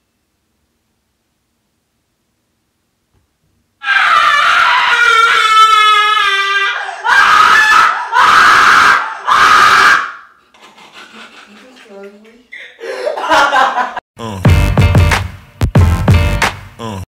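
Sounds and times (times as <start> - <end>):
man screaming in fright: 3.8 - 10.3.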